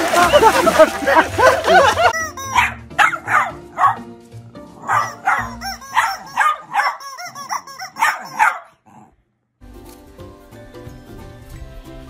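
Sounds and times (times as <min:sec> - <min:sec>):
background music: 0:00.0 - 0:08.6, 0:09.6 - 0:12.0
small dog barking: 0:02.5 - 0:04.1, 0:04.8 - 0:09.1.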